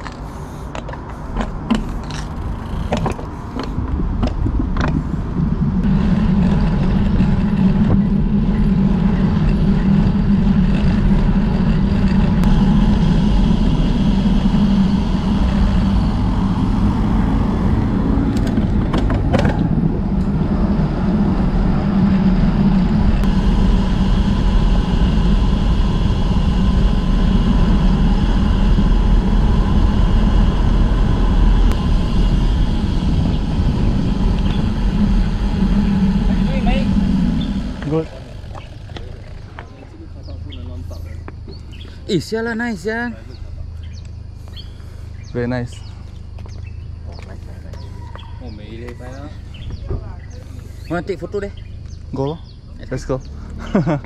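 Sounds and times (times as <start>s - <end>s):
bicycle tyre and road noise: 0.0s - 54.0s
wind rush on microphone: 1.4s - 39.6s.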